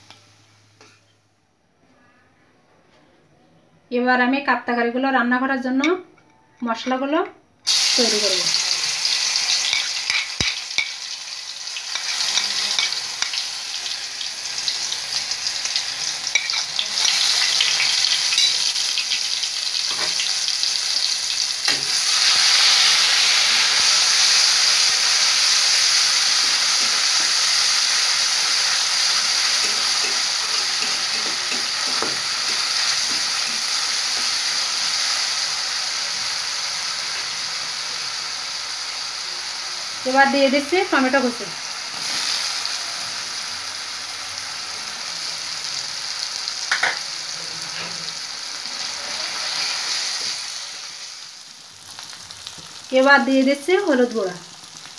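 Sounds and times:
paste sizzling in hot oil: 7.7s - 54.9s
spoon clicking and scraping: 9.7s - 11.0s, 16.3s - 16.7s, 29.5s - 34.3s.

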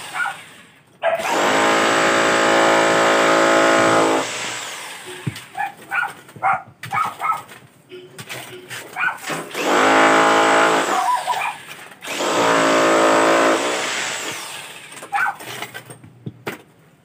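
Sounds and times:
electric drill running: 1.2s - 5.2s, 12.0s - 15.0s.

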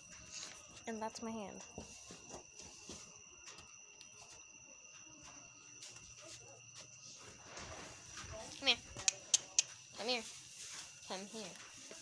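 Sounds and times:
faint high-pitched tone: 0.0s - 9.1s.

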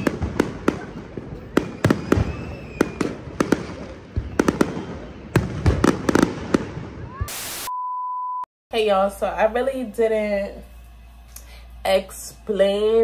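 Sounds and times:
fireworks bangs: 0.0s - 7.7s.

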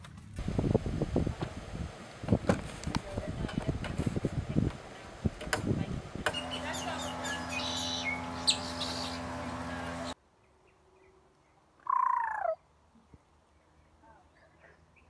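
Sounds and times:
birds chirping: 6.1s - 15.0s.

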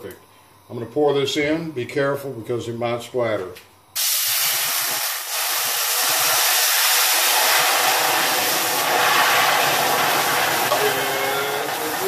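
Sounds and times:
vinegar sizzling in hot pan: 4.0s - 12.0s.

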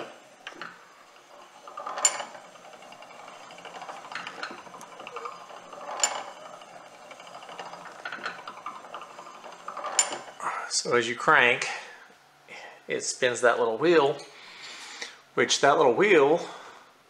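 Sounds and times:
ratchet pawl clicking: 0.0s - 10.5s
faint mechanical rattle: 0.0s - 12.0s.

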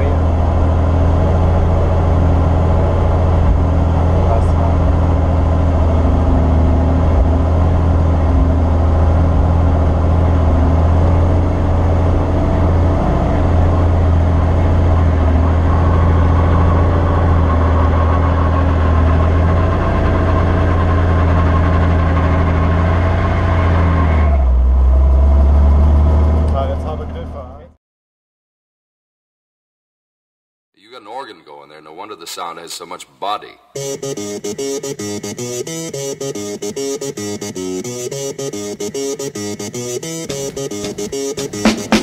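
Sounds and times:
high steady tone: 33.7s - 42.0s.

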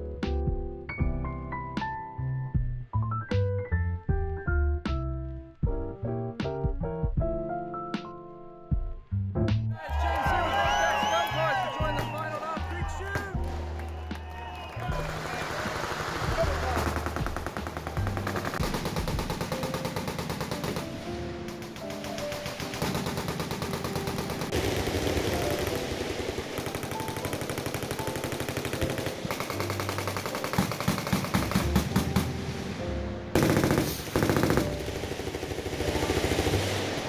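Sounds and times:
machine guns firing: 14.9s - 32.4s, 33.3s - 37.0s.

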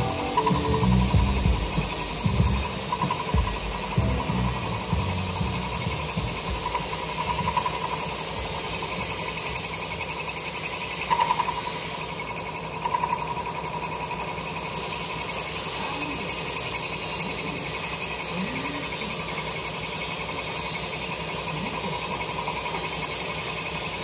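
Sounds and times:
shop machinery running: 0.0s - 10.9s
constant high tone: 0.0s - 24.0s.

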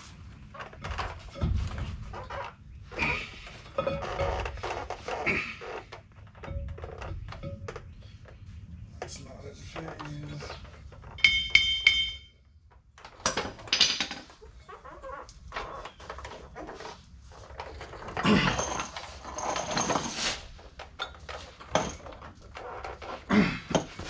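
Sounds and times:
steel clanks and knocks: 0.7s - 2.2s, 3.1s - 4.8s, 6.3s - 8.4s, 10.0s - 12.4s, 20.9s - 24.0s
ringing metal clink: 11.2s - 12.4s
metal scraping and rattling: 15.4s - 24.0s.

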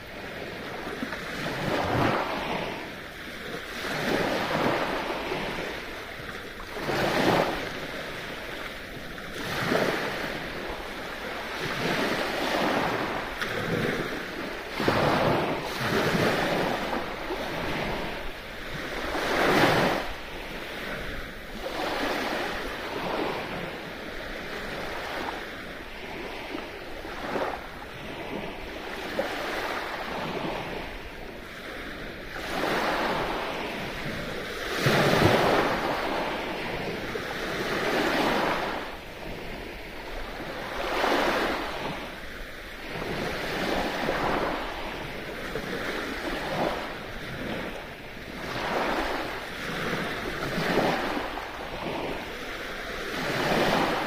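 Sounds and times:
waves breaking on shore: 0.0s - 54.0s.

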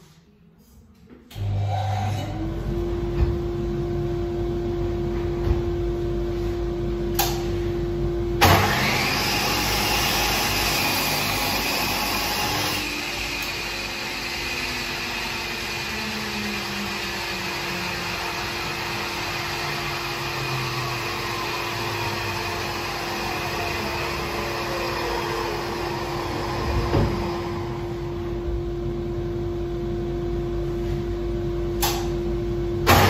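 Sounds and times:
chop saw motor whine: 8.4s - 28.0s
saw cutting through wood: 8.5s - 27.3s.

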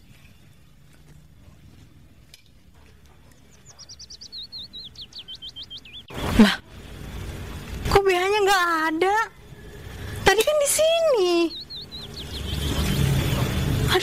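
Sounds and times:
small bird chirping: 3.2s - 6.4s, 9.7s - 14.0s.

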